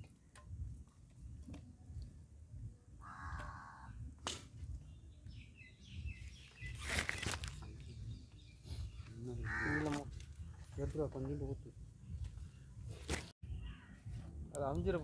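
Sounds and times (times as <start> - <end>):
crow cawing: 3.0 - 4.0, 9.4 - 10.1.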